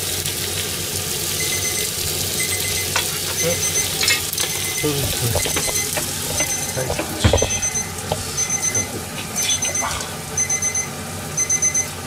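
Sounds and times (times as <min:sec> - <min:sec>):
electronic beeper alarm: 0:01.4 - 0:12.0.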